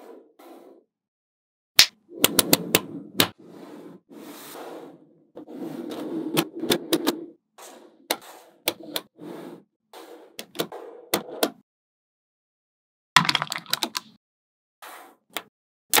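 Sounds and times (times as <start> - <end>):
balls scraping and sliding: 0.0 - 0.9, 2.0 - 11.6, 14.8 - 15.5.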